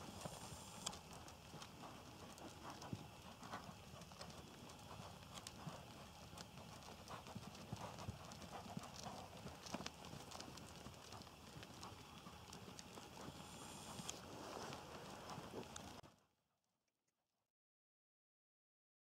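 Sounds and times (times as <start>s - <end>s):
hoofbeats on sand: 0.0s - 16.0s.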